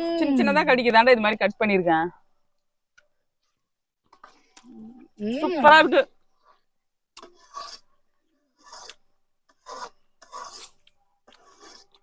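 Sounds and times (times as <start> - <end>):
faint rasping scrapes: 6.3 - 12.0.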